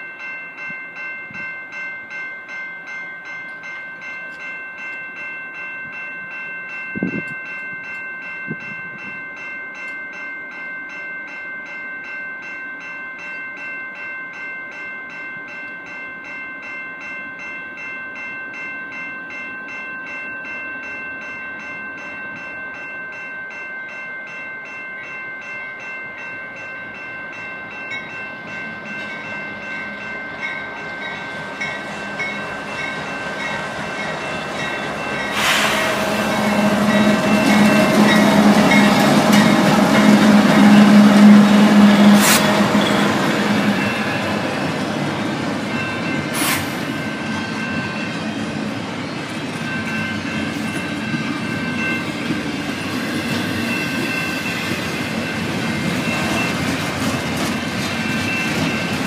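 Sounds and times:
level crossing bells ringing: 0.0 - 48.5, 49.4 - 59.0
diesel locomotive rumble: 29.3 - 59.0.

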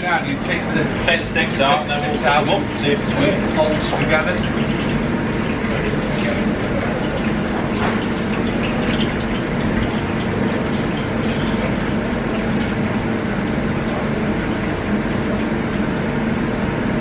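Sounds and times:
extraction fan humming: 0.0 - 17.0.

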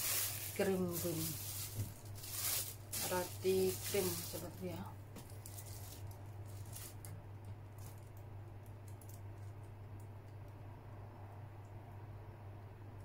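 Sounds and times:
plastic wrapper crinkling: 0.0 - 9.7
low electrical hum: 0.0 - 13.0.

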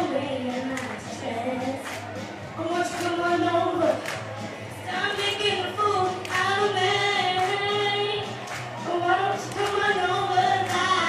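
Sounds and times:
backing music: 0.0 - 11.0
woman singing pop song: 0.0 - 11.0.

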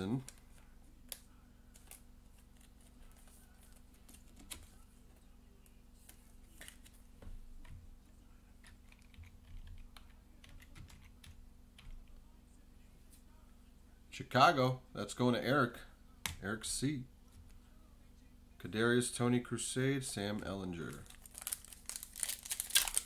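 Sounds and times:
plastic sleeve clicks and rustles: 21.0 - 23.0.

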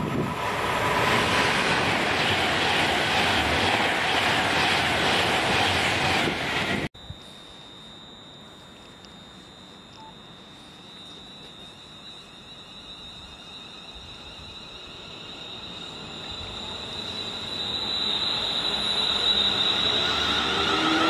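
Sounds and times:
train running noise: 0.0 - 7.6, 8.7 - 21.0
high-pitched electric whine: 7.0 - 21.0.

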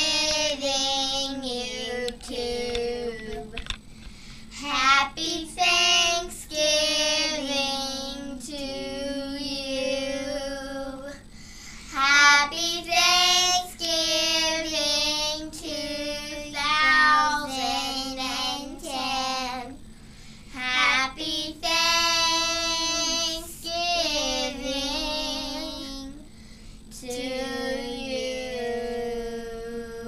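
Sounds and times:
girls singing unaccompanied: 0.0 - 3.6, 4.6 - 11.2, 12.0 - 19.8, 20.6 - 26.2.

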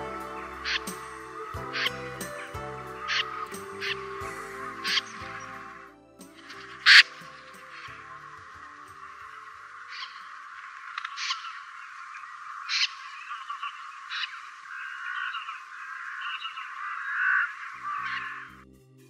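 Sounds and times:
birds chattering: 11.0 - 18.6.

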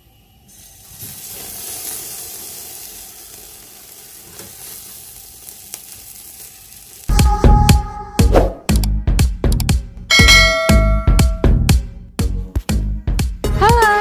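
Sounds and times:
chicken sizzling on a grill: 0.2 - 7.1
bell-like music sting: 10.1 - 11.6.

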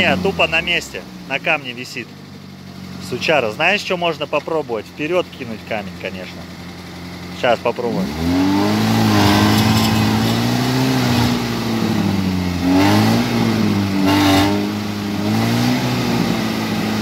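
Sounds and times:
car engine revving hard: 7.8 - 17.0.

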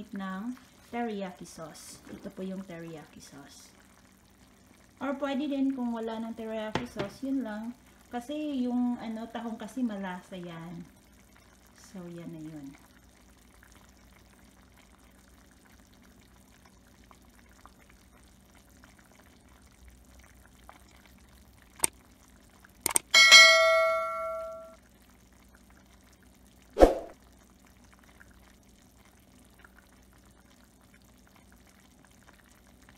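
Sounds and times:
sharp clicks: 22.9 - 23.1
bright bell ding: 23.1 - 24.7.

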